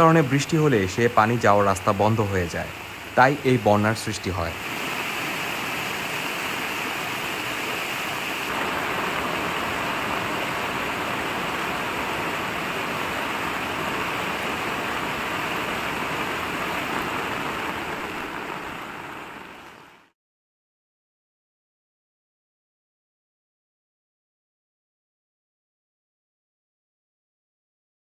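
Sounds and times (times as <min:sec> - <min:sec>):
river water rushing: 0:00.0 - 0:20.0.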